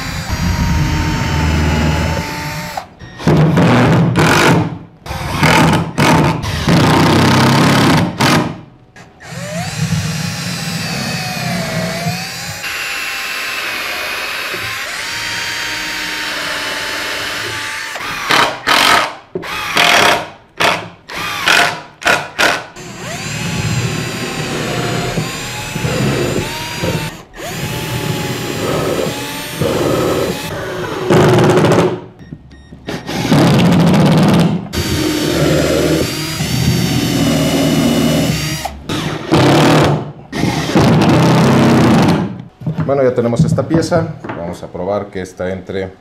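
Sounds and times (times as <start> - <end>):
cordless drill boring wood: 0.0 - 2.9, 9.2 - 30.6, 34.8 - 39.8.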